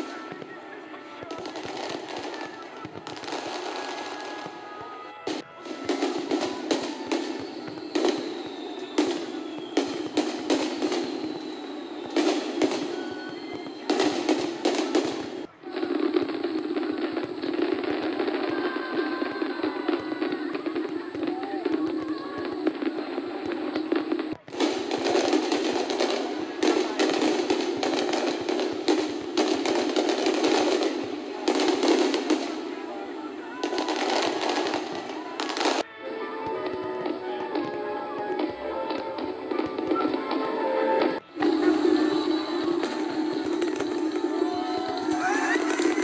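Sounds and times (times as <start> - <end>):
firework shells bursting: 5.3 - 32.8, 41.3 - 46.0.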